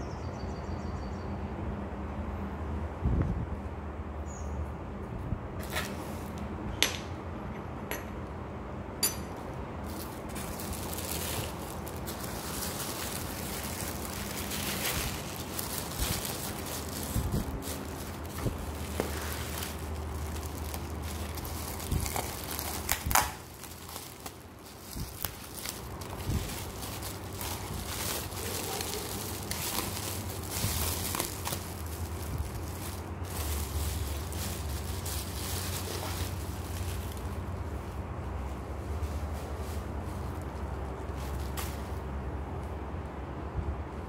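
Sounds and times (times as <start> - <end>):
tissue paper rustling: 9.8 - 40.5
bubble wrap crinkling: 9.8 - 42.0.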